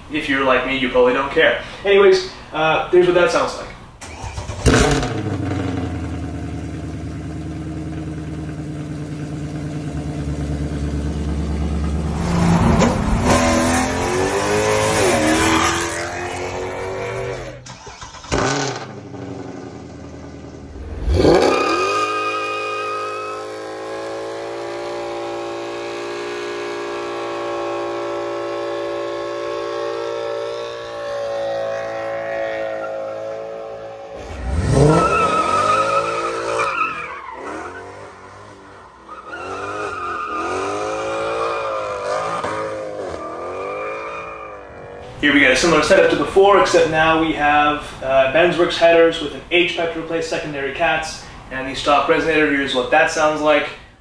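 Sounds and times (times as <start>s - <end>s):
car engine idling and revving: 4.0s - 45.7s
tires squealing: 11.6s - 18.8s, 20.8s - 46.0s.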